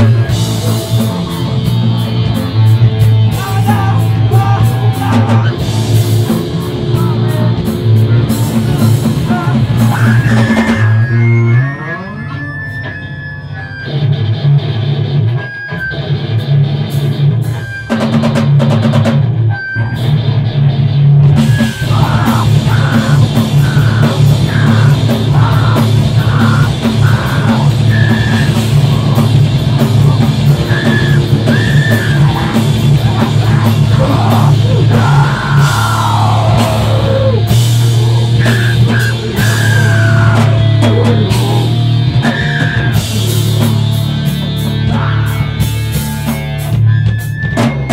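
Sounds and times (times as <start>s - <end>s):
drum kit with crashing cymbals: 0.0s - 11.0s, 21.2s - 47.9s
bass guitar: 0.0s - 47.9s
distorted electric guitar: 0.0s - 47.9s
screamed vocals: 3.3s - 6.0s, 9.2s - 12.8s, 21.4s - 43.4s.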